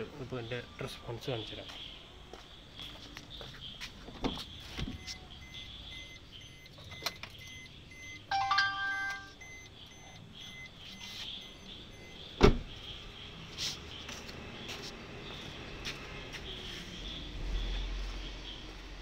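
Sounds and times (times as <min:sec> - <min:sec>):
short electronic chime: 0:08.3 - 0:09.4
car door thump: 0:12.4 - 0:12.8.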